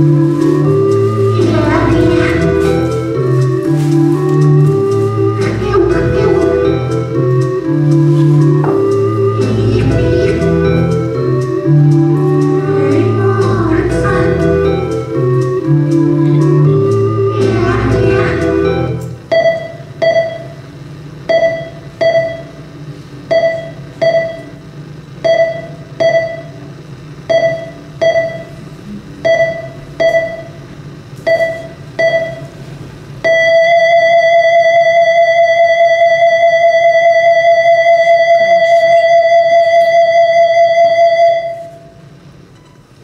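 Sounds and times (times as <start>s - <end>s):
steady flatline tone: 0.0s - 43.0s
heart monitor beeping: 18.2s - 30.6s, 31.2s - 32.6s, 33.2s - 41.8s.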